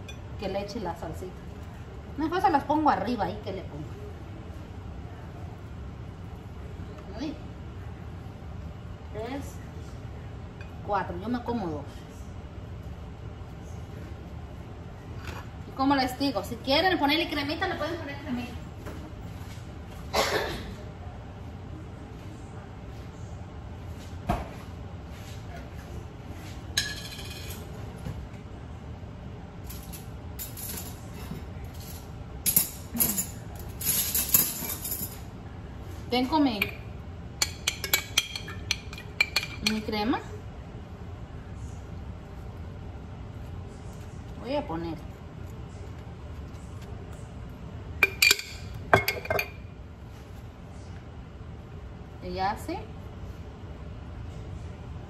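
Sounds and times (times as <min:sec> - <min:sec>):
dishes and cutlery clinking: 0:37.4 - 0:39.9, 0:48.0 - 0:49.6.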